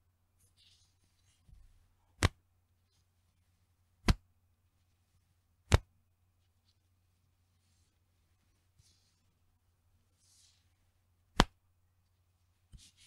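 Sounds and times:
elastic band snapping: 0:02.2 - 0:02.4, 0:11.4 - 0:11.6.

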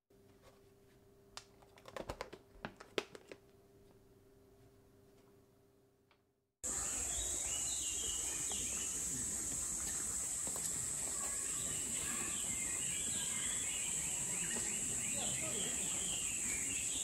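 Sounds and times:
birds chirping: 0:06.6 - 0:17.0
high insect drone: 0:06.6 - 0:17.0.

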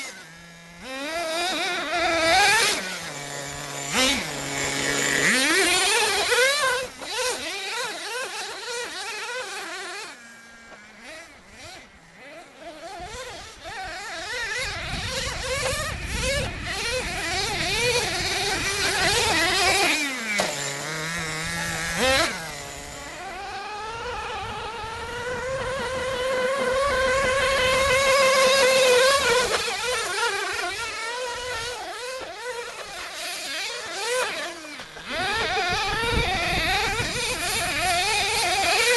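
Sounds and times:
small engine revving and buzzing: 0:00.0 - 0:38.9.

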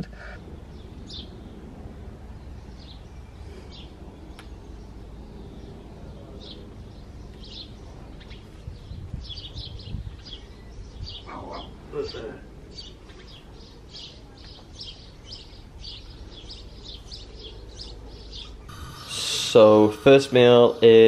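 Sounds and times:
birds chirping: 0:00.0 - 0:21.0.

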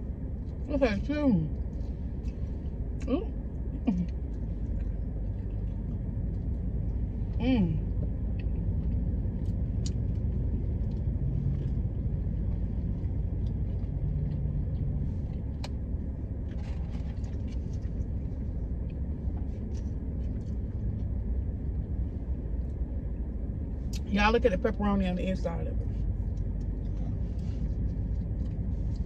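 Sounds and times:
car engine and air conditioning: 0:00.0 - 0:29.0
faint clicks and rustles: 0:03.6 - 0:23.3.

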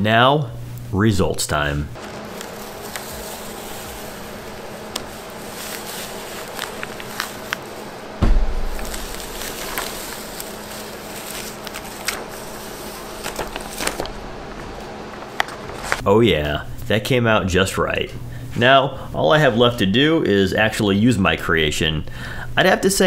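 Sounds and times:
paper stencil peeling off: 0:02.0 - 0:16.0
low thump: 0:08.2 - 0:10.0.

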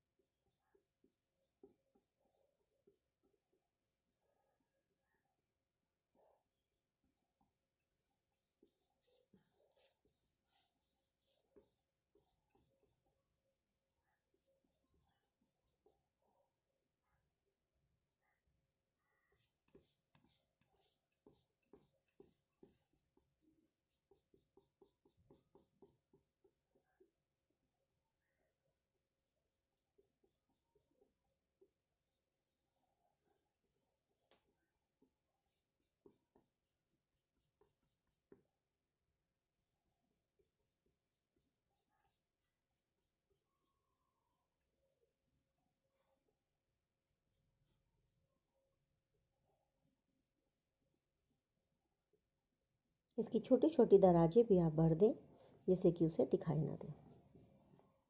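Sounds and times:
paintbrush scratching on wood: 0:00.2 - 0:04.3, 0:07.0 - 0:16.0, 0:19.3 - 0:27.5, 0:28.5 - 0:38.4, 0:39.6 - 0:51.7, 0:55.1 - 0:58.0.

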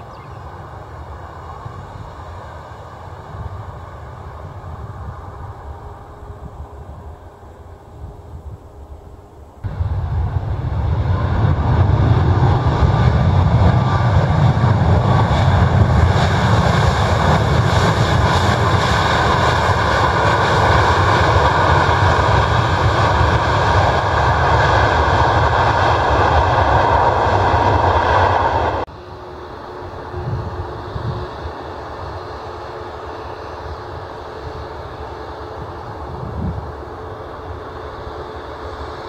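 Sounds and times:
jet engines rumbling: 0:00.0 - 0:39.0.

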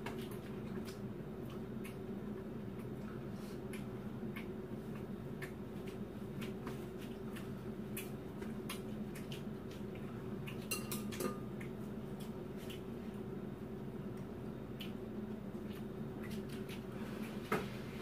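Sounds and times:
chopsticks clicking against bowls: 0:10.5 - 0:12.8.

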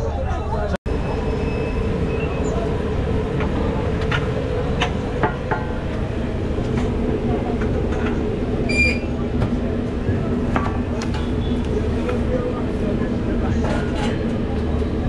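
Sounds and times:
low mechanical drone: 0:00.9 - 0:15.0.

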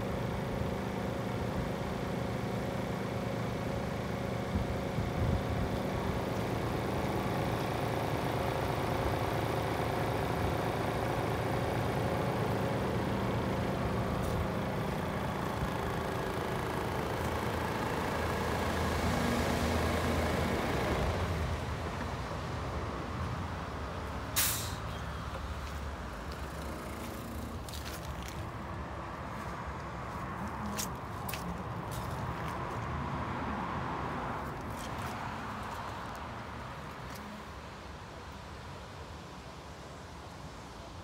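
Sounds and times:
truck diesel engine idling: 0:00.0 - 0:29.3.

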